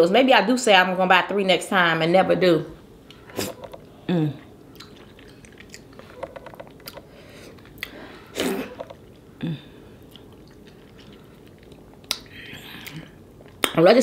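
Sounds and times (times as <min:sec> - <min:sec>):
wet chewing: 0:03.4 - 0:09.4, 0:10.0 - 0:13.8.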